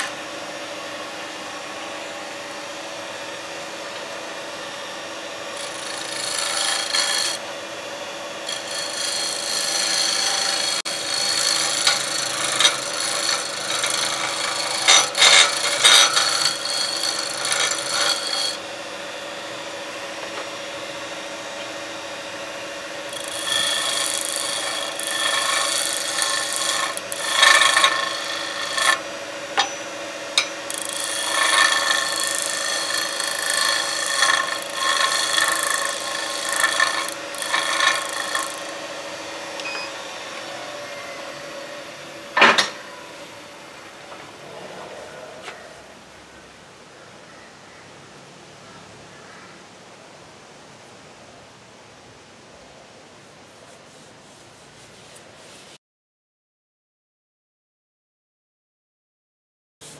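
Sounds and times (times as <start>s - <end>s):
wood lathe humming: 0.0s - 42.4s
gouge shaving spinning wood: 5.4s - 18.8s, 22.5s - 39.4s.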